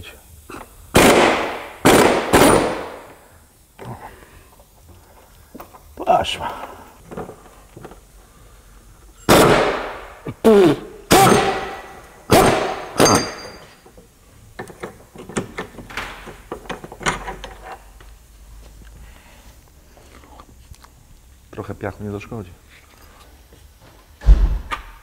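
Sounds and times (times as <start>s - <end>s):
loud metallic clunks and clangs: 11.1s - 13.7s.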